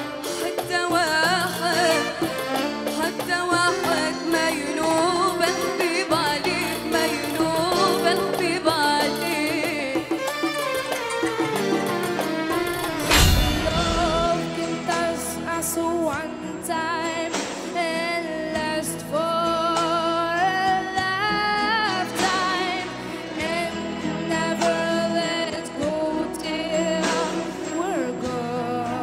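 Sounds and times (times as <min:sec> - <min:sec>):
girl singing into a microphone: 0:00.0 - 0:10.4, 0:13.6 - 0:29.0
backing music: 0:00.0 - 0:29.0
folk music with ornamented melody: 0:09.4 - 0:17.3.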